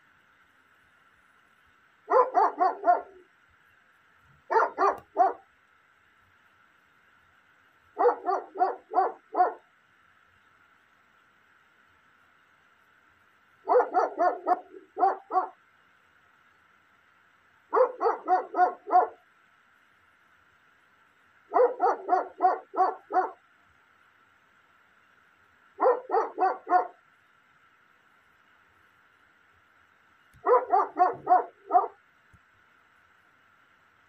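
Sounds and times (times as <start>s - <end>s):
faint high hum: 0.0s - 34.0s
dog barking: 2.1s - 3.2s, 4.5s - 5.4s, 8.0s - 9.6s, 13.7s - 15.6s, 17.7s - 19.2s, 21.5s - 23.4s, 25.8s - 27.0s, 30.4s - 32.0s.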